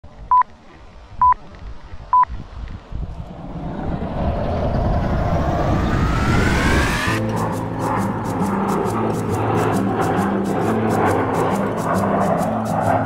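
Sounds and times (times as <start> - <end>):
whoosh with rising whine: 2.8 - 13.0.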